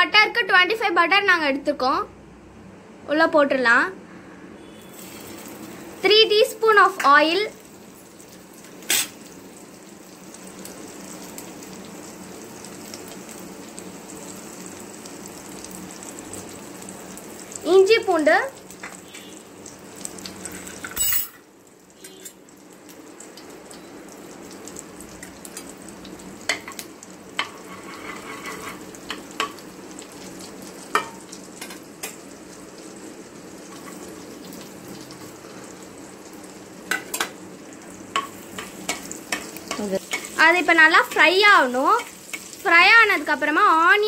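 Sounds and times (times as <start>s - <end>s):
butter sizzling in a pan: 4.8s - 44.0s
metal spoon clicking on pan: 38.1s - 40.3s.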